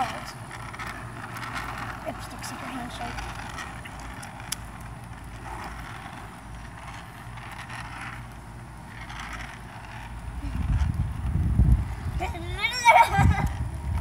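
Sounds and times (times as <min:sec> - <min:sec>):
small wheels rolling on asphalt: 0:00.0 - 0:14.0.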